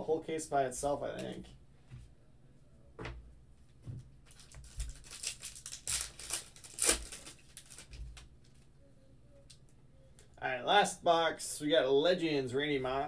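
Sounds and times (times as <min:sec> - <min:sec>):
foil wrapper tearing and crinkling: 0:04.3 - 0:08.6.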